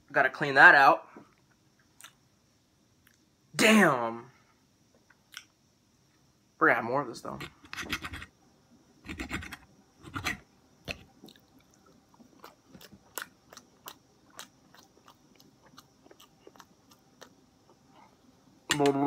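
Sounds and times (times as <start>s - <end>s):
person chewing food: 10.1s - 18.1s.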